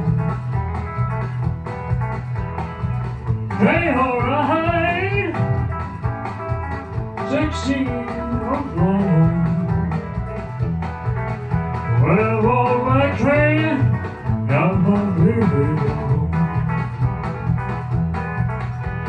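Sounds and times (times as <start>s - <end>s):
rockabilly backing track: 0.0s - 19.0s
man singing into microphone: 3.6s - 5.5s, 7.2s - 10.0s, 12.0s - 16.7s.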